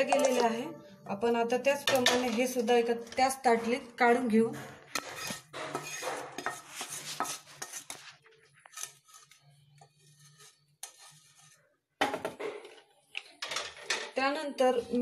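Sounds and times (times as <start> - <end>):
wooden spatula scraping a pan: 4.8 - 11.7.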